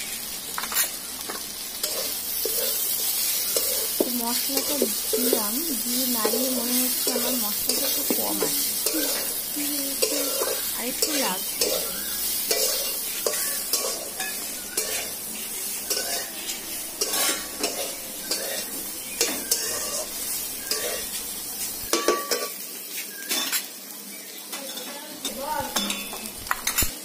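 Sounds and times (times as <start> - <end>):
hot oil sizzling: 0.0 - 27.0
metal spatula scraping pan: 0.6 - 21.2.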